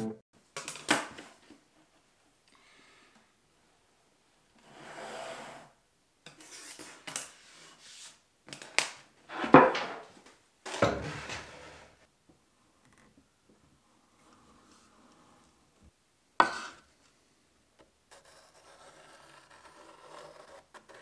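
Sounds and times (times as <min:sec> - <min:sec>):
pencil scratching on plywood: 0:18.1 - 0:21.0.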